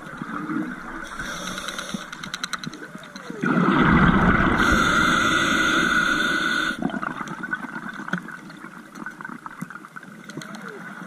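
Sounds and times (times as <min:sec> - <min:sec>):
faint underwater clicks: 0:01.0 - 0:03.6, 0:06.7 - 0:11.0
diver's exhaled bubbles rushing: 0:03.4 - 0:06.1, 0:06.7 - 0:08.1.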